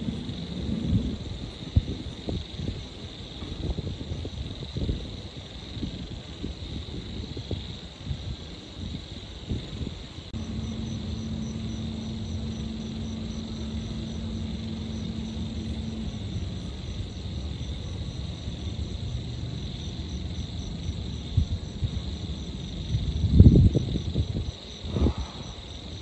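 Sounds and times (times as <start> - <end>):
insects trilling: 0.0 - 26.0
low steady hum: 10.3 - 24.4
distant traffic rumble: 10.3 - 25.6
high pulsing chirp: 10.4 - 19.2.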